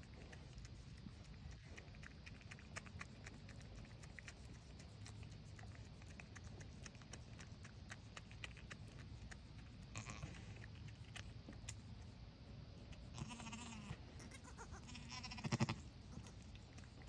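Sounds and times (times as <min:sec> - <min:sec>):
small clicks and ticks: 0:00.0 - 0:12.1.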